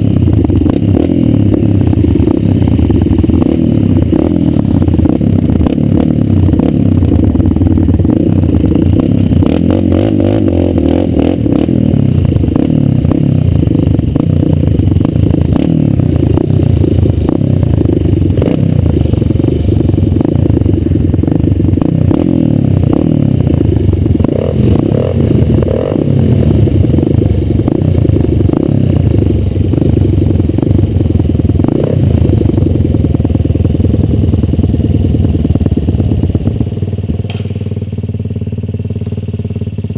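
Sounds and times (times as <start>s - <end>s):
motorcycle engine revving: 0.0s - 39.9s
bike rattles and knocks: 29.7s - 37.9s.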